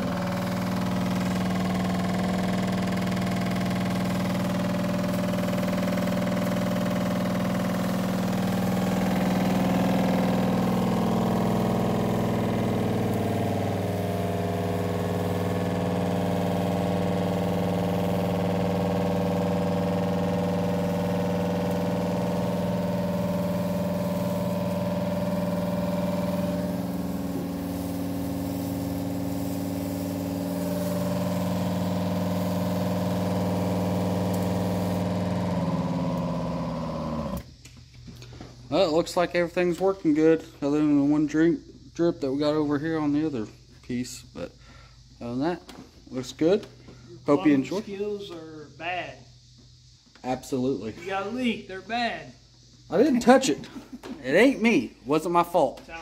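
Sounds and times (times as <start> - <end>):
diaphragm pump humming: 0.0 - 37.5.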